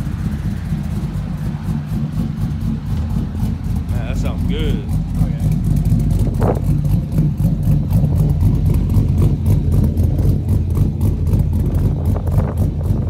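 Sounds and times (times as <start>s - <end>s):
truck engine idling: 0.0s - 13.0s.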